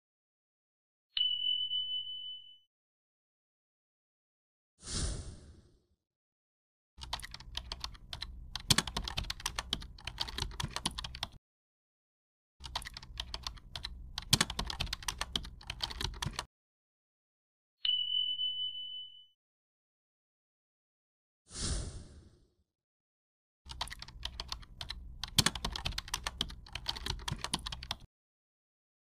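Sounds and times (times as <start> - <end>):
rapid keyboard key clicks: 7.0 - 11.4, 12.6 - 16.5, 23.7 - 28.1.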